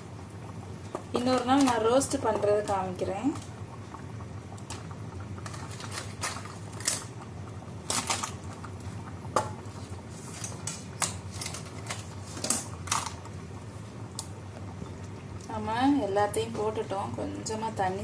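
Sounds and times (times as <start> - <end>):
steady low hum: 0.0 - 18.0
crab pieces clicking in pot: 0.9 - 3.6, 4.6 - 9.6, 10.5 - 13.3.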